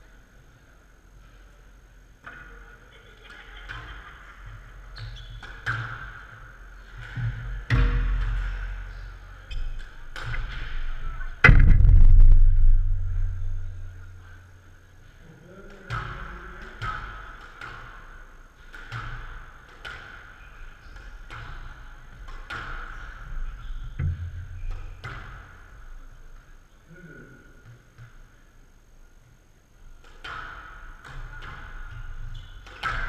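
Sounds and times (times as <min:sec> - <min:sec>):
squash ball hitting rackets and walls: 0:05.3 - 0:14.8, 0:15.7 - 0:26.0, 0:30.0 - 0:33.0
heavy thud: 0:11.4 - 0:14.6
low rumble: 0:11.4 - 0:14.9.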